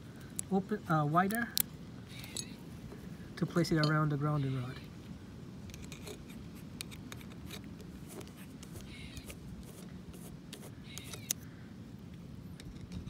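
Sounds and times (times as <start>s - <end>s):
squirrel calling: 2.0s - 2.7s, 3.8s - 5.0s, 8.6s - 9.4s, 10.6s - 11.6s
screwdriver clicks and scrapes on metal: 5.6s - 9.4s, 10.5s - 11.4s.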